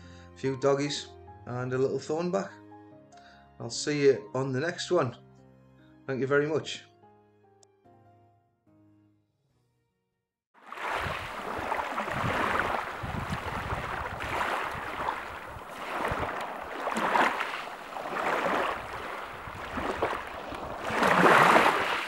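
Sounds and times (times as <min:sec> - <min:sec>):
sea surf washing onto beach: 0:10.6 - 0:22.0
wind rumbling on microphone: 0:10.9 - 0:22.0.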